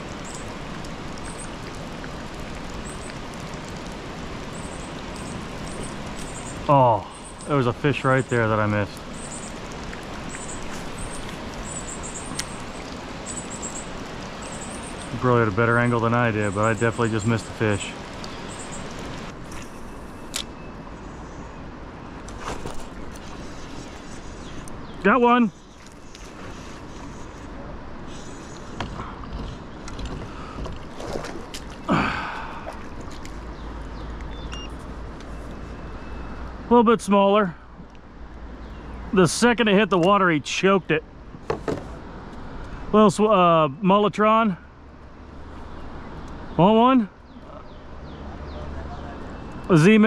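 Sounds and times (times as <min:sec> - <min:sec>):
fish splashing: 0:00.0 - 0:15.1, 0:28.2 - 0:34.0
small bird chirping: 0:04.5 - 0:15.2, 0:15.8 - 0:21.6, 0:33.5 - 0:36.4.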